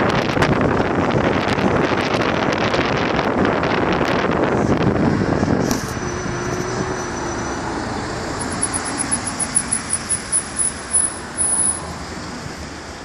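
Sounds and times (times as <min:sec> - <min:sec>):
street traffic: 0:00.0 - 0:13.0
fast high-pitched ticks: 0:08.4 - 0:11.9.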